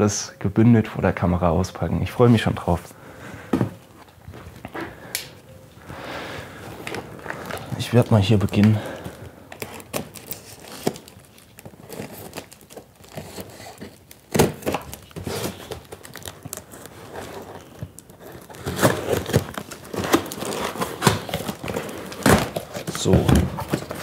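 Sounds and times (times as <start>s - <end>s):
cardboard crinkling: 2.2s - 24.0s
tape tearing: 6.8s - 24.0s
knife cutting packing tape: 9.6s - 24.0s.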